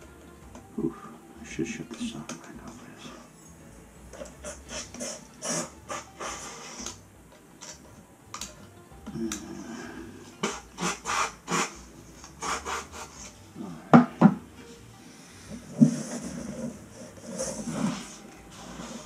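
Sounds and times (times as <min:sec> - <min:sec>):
compressed air puffs: 0:04.2 - 0:07.0, 0:09.5 - 0:13.5, 0:15.0 - 0:19.0
can knocking on floor: 0:14.0 - 0:14.4.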